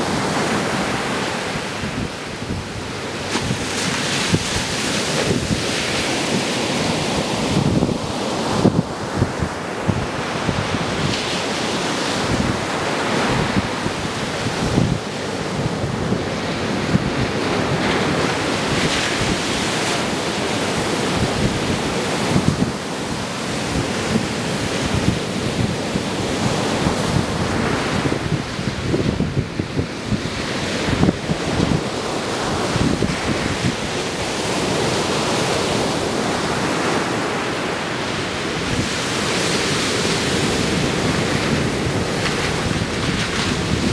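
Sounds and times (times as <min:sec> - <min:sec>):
ocean surf breaking: 0:00.0 - 0:43.9
wind buffeting microphone: 0:00.0 - 0:43.9.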